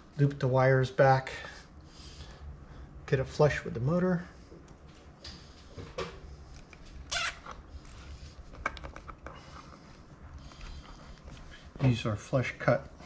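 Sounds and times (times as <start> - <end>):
faint low hum: 0.0 - 13.0
wires rustling and clicking: 4.5 - 12.1.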